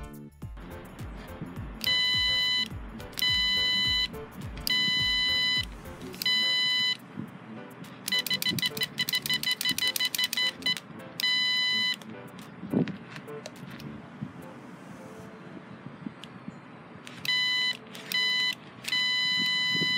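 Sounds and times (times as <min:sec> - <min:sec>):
piezo buzzer beeping: 0:01.8 - 0:07.0, 0:08.1 - 0:12.0, 0:17.2 - 0:19.9.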